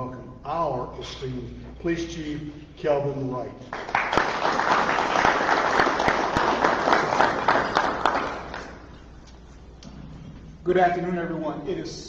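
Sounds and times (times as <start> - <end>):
audience applauding: 3.7 - 9.0.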